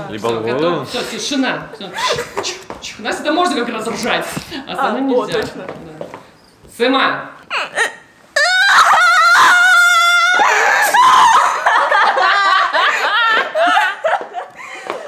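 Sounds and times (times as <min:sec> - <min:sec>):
girls laughing: 0:01.8 - 0:02.7, 0:07.5 - 0:15.0.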